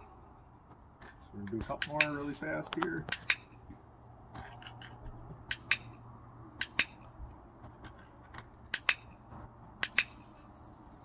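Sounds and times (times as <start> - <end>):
dog-training clicker clicking: 5.5 - 5.9, 6.6 - 7.0, 8.7 - 9.1, 9.8 - 10.2.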